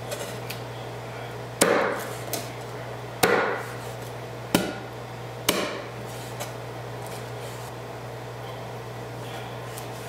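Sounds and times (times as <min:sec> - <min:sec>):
cleaver chopping on wooden board: 0:01.6 - 0:02.5, 0:03.2 - 0:03.8, 0:04.5 - 0:05.9.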